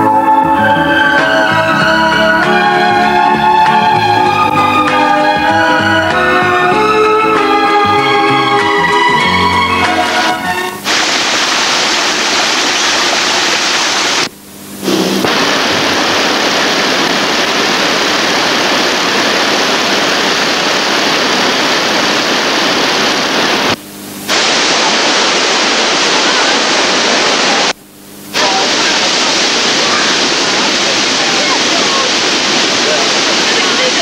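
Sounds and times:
waterfall and stream rushing: 10.0 - 27.7, 28.4 - 34.0.

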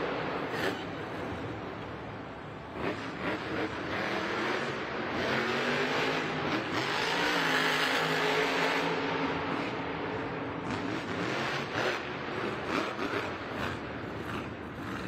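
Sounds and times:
monster truck engine revving: 2.7 - 9.8, 10.6 - 15.0.

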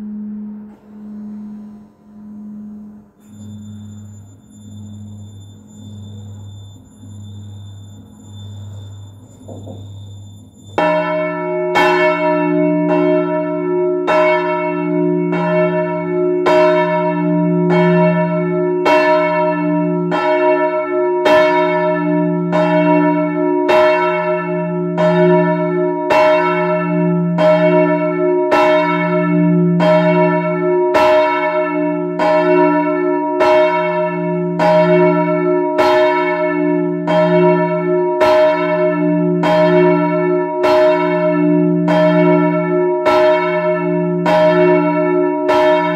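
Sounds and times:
deep bell hum: 0.0 - 19.0
church bell ringing: 0.0 - 45.9.

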